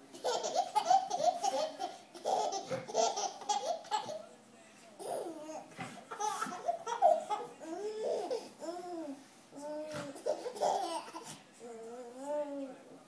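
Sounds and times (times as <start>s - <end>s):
baby giggling: 0.1s - 4.2s, 5.0s - 8.8s, 10.2s - 11.3s.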